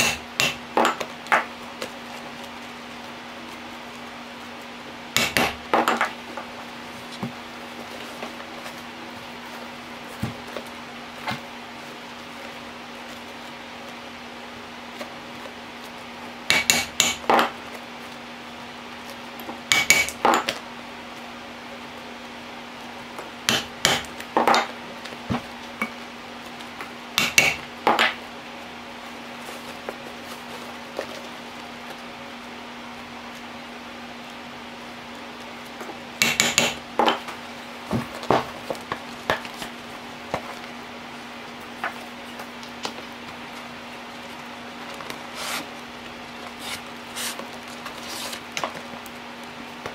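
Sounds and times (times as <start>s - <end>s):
mallet striking metal hole punch: 5.2s - 6.0s, 16.5s - 17.3s.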